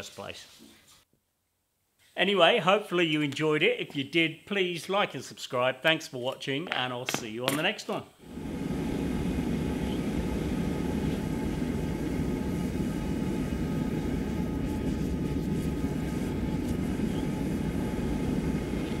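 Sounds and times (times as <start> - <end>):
gas forge burner rushing: 8.2 - 19.0.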